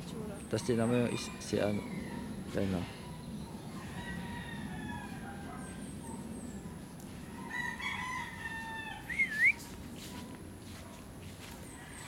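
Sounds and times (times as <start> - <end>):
small birds chirping: 0.0 - 4.0
rooster crowing: 3.7 - 5.6, 7.3 - 9.5.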